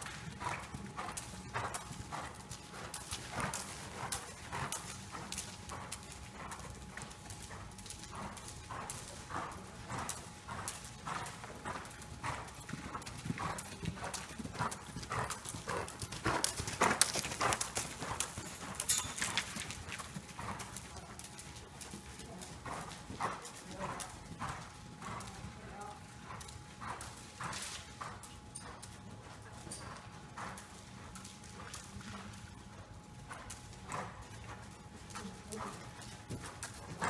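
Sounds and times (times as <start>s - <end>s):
horse hooves trotting on sand: 0.0s - 37.0s.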